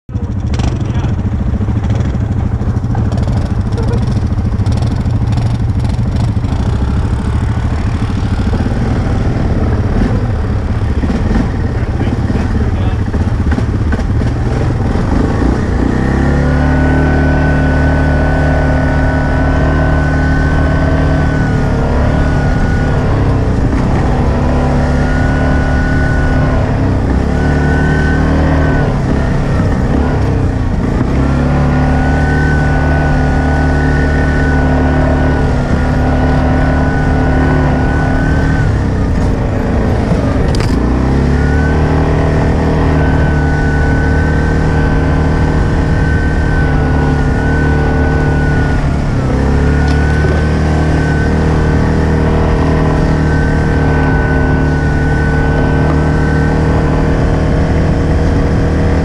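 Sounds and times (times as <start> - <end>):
atv engine revving: 0.1 - 59.0
thin high whine: 31.3 - 58.5.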